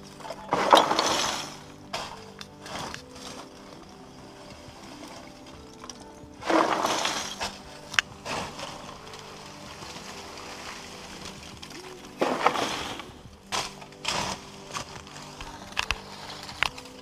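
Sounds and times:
charcoal shovelled rattling: 0.0s - 17.0s
faint background music: 0.0s - 17.0s.

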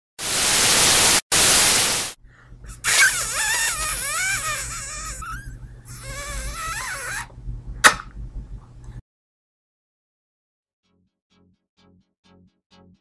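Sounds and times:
loud hissing static: 0.2s - 2.2s.

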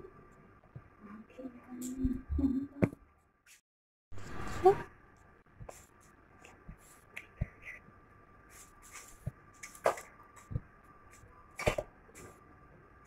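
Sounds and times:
claws scuffling on paper: 8.5s - 12.4s.

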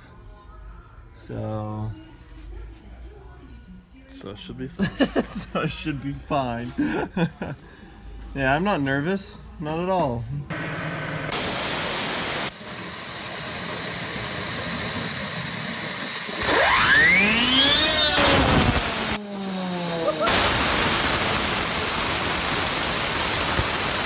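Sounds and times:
waterjet stream hissing: 10.5s - 24.0s
spinning blade whine: 12.3s - 24.0s.

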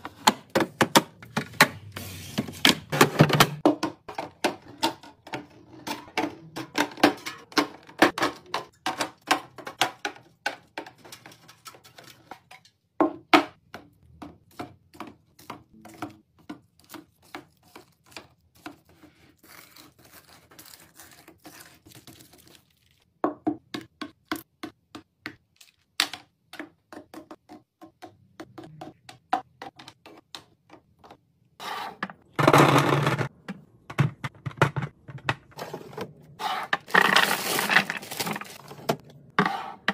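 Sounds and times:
cans and boxes tapping plastic: 2.6s - 11.3s
plastic organiser rattling: 36.8s - 39.0s.

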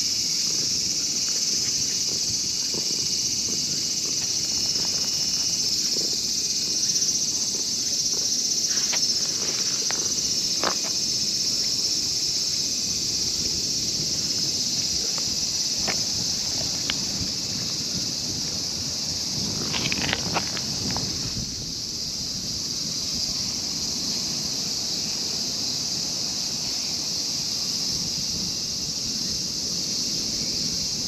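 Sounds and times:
insects chorus: 0.0s - 31.0s.

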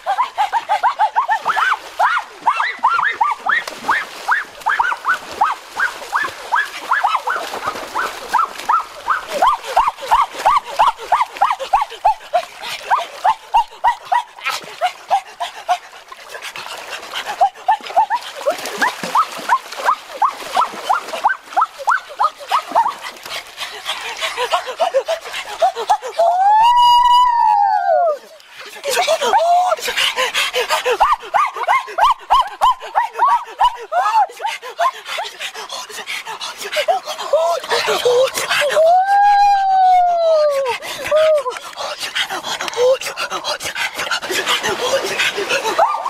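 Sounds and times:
rapid high-pitched animal yelps: 0.0s - 12.2s, 19.0s - 23.0s
splashing water: 0.0s - 46.0s.

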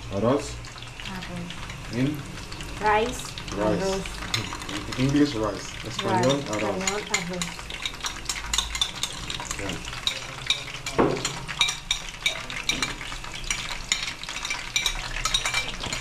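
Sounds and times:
food sizzling in a pot: 0.0s - 16.0s
utensil stirring and scraping pot: 0.6s - 16.0s
utensil clicking against pot: 4.0s - 16.0s.

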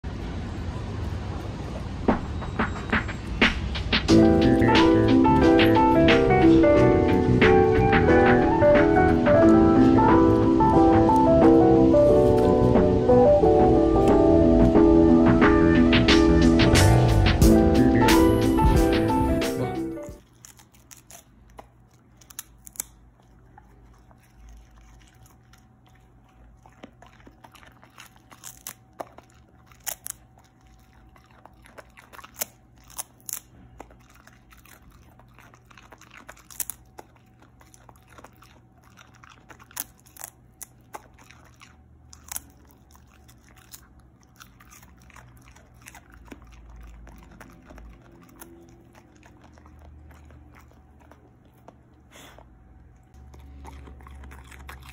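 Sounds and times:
dog crunching cabbage leaves: 0.0s - 54.9s.

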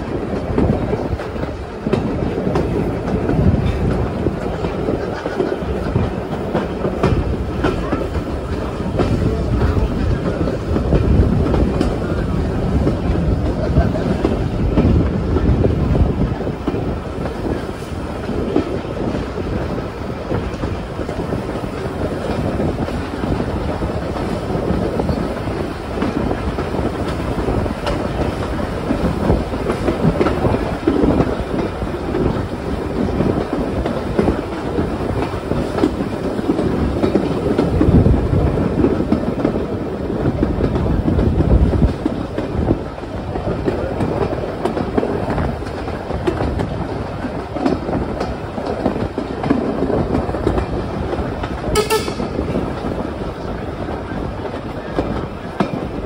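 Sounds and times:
train wheels clattering on rails: 0.0s - 56.0s.

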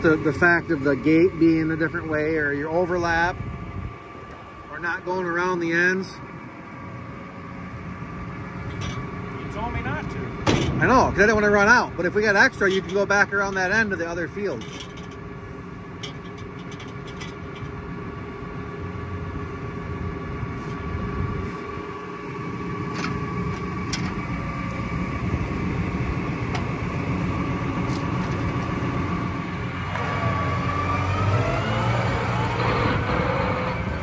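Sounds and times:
tractor diesel engine idling: 0.0s - 30.0s
engine revving with rising whine: 24.2s - 34.0s.

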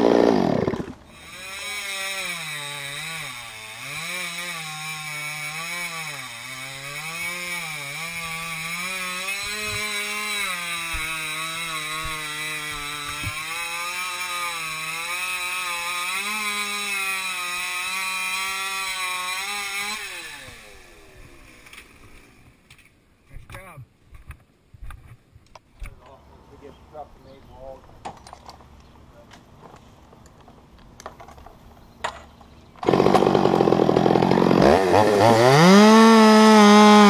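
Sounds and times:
chainsaw cutting at high revs: 0.0s - 22.1s, 32.8s - 37.0s.

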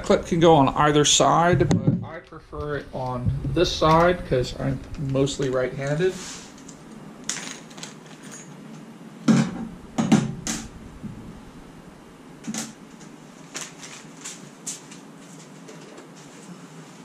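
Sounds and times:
plastic bag crinkling: 12.9s - 15.6s.

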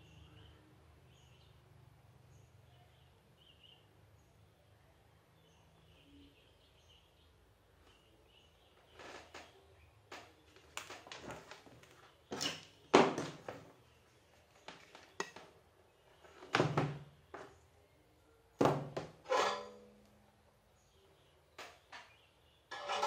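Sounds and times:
tools and cable clattering: 22.7s - 23.0s.

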